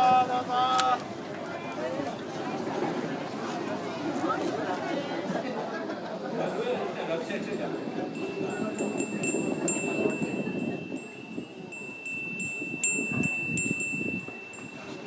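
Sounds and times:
metal wind bell tinkling: 7.6 - 15.0.

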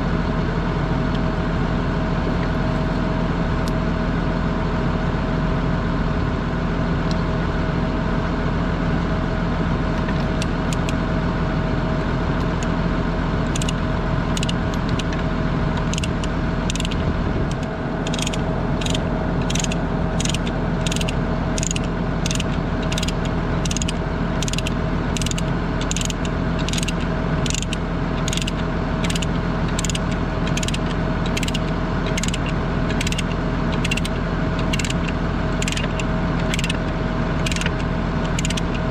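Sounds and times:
diesel engine idling: 0.0 - 38.9
ratchet chain binder clicking: 10.4 - 11.0, 13.5 - 15.2, 15.8 - 38.8.

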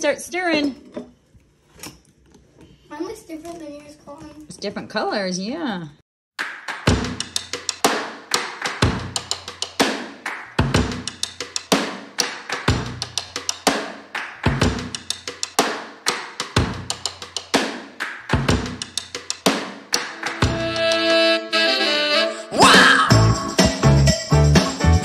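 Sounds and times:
bass kick drum: 6.9 - 7.2.

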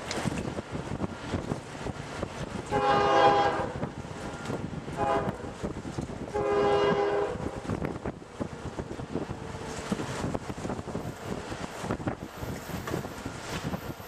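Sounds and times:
distant locomotive air horn: 2.7 - 3.9, 4.9 - 5.6, 6.3 - 7.7.

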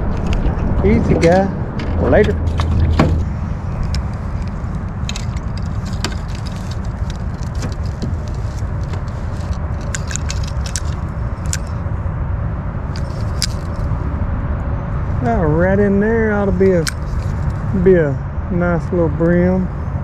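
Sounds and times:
low rumble: 0.0 - 20.0
fishing reel clicks and rattles: 3.8 - 11.8, 12.9 - 13.8.

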